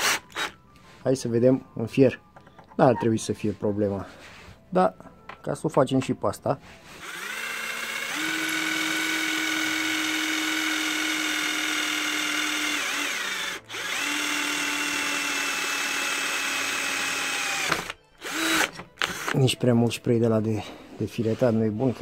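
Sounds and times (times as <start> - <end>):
cordless drill whining: 0.0 - 0.6, 6.9 - 19.4.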